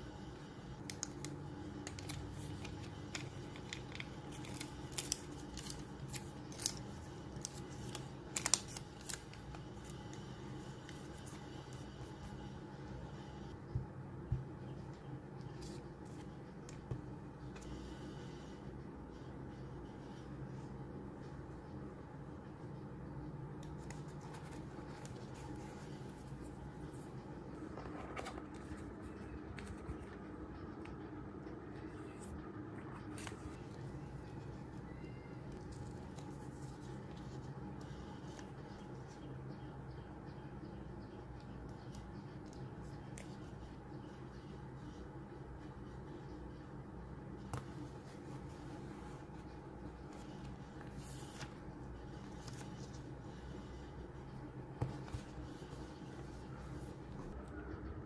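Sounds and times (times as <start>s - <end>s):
steady low hum: 0.0s - 58.0s
tape being peeled: 0.8s - 11.9s, 35.5s - 38.8s
paper crinkling: 1.8s - 11.9s.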